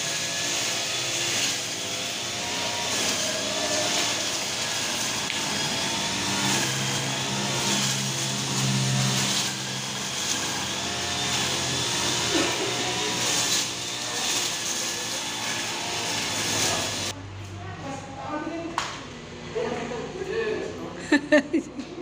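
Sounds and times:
brush cutter engine running: 0.0 - 17.2.

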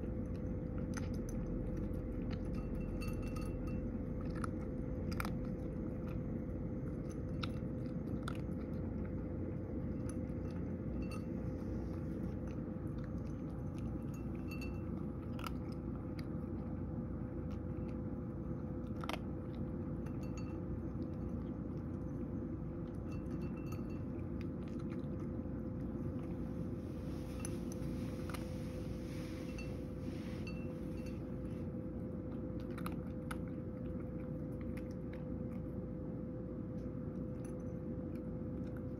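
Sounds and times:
cat crunching dry kibble: 0.0 - 38.9
steady low hum: 0.0 - 38.9.

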